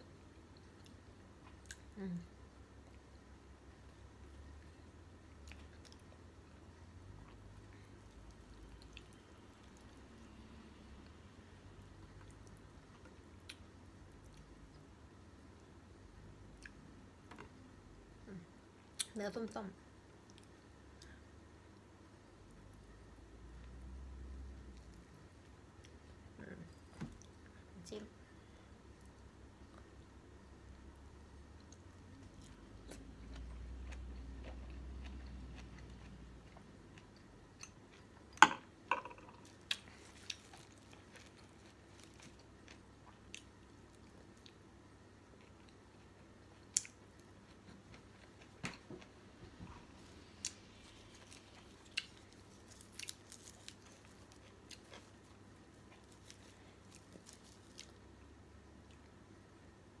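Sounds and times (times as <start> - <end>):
person chewing food: 31.5 - 38.4, 39.0 - 44.7, 49.8 - 58.2.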